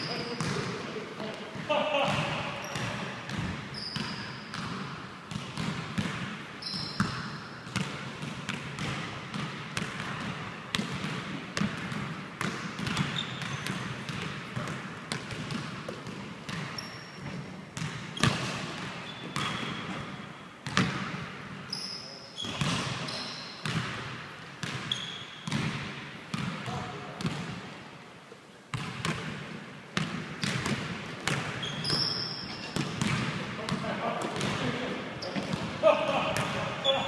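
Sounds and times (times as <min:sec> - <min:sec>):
basketball bouncing on wood floor: 0:00.0 - 0:00.7, 0:02.1 - 0:20.0, 0:20.6 - 0:21.2, 0:24.6 - 0:27.5, 0:30.0 - 0:34.6
sneakers squeaking on wood: 0:02.6 - 0:03.0, 0:03.7 - 0:04.7, 0:06.6 - 0:07.4, 0:13.0 - 0:13.8, 0:16.6 - 0:17.4, 0:18.2 - 0:20.1, 0:21.7 - 0:23.7, 0:24.8 - 0:25.5, 0:31.5 - 0:33.1, 0:35.2 - 0:35.7.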